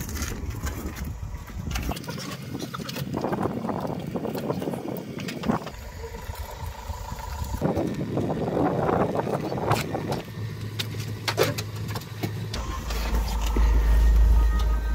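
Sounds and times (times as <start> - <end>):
wind rumbling on microphone: 0.0 - 10.3
faint steady hum: 0.0 - 14.9.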